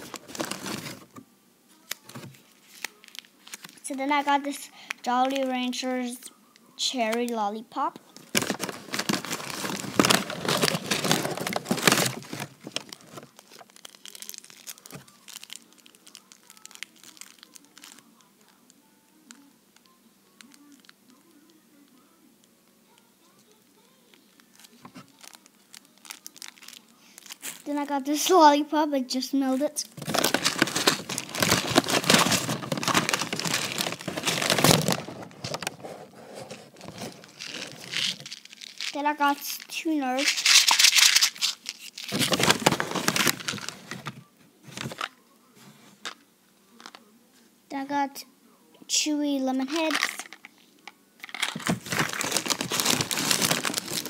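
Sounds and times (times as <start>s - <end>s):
plastic candy wrapper crinkling: 0.0s - 1.2s, 1.8s - 6.1s, 8.1s - 18.6s, 20.3s - 21.6s, 23.8s - 28.4s, 29.4s - 45.2s, 49.6s - 54.0s.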